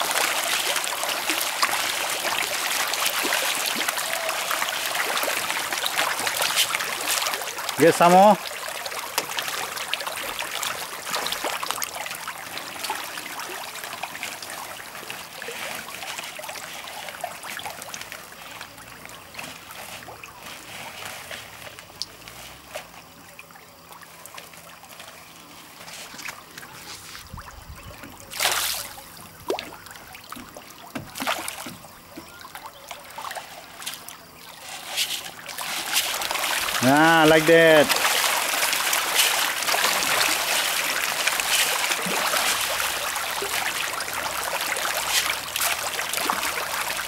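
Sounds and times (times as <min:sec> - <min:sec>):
fish splashing at water surface: 0:00.0 - 0:47.0.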